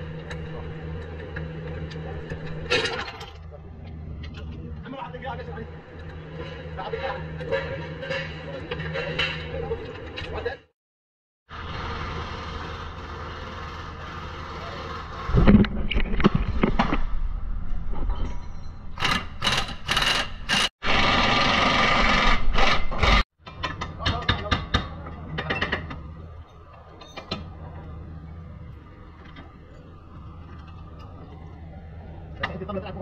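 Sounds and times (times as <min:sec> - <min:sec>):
power tool running: 0:19.0 - 0:23.2.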